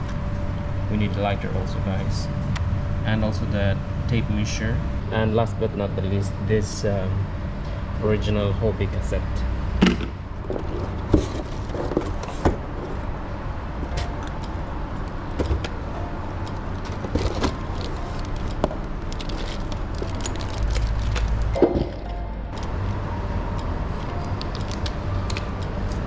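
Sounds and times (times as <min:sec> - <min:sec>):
low rumble: 0:12.7 - 0:26.0.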